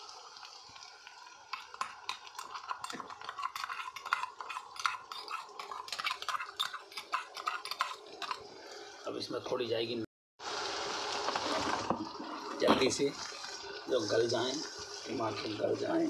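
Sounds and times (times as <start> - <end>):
oil sizzling: 0.0 - 9.6, 10.4 - 16.0
metal spoon scraping bowl: 1.5 - 8.4.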